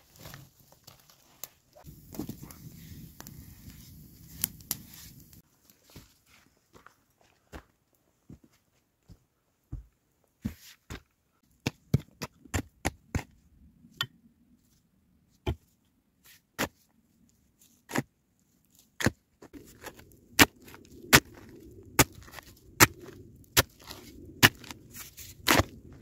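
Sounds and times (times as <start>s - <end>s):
loose dirt scraping: 0.0s - 6.5s, 18.7s - 26.0s
footsteps crunching on snow: 0.0s - 7.7s
shovel chopping into earth: 19.8s - 25.8s.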